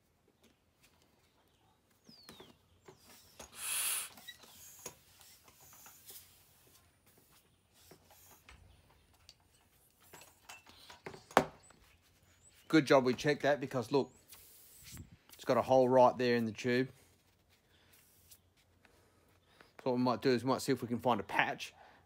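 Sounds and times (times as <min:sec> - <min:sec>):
rubber tube squeaking and rubbing: 0:03.0 - 0:06.6, 0:14.1 - 0:15.4
short air hiss: 0:03.5 - 0:04.8, 0:14.2 - 0:15.1.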